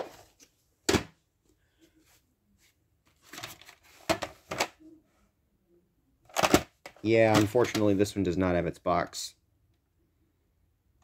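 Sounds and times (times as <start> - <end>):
plastic cassette rustling and clacking: 3.1 - 4.8, 6.3 - 7.9.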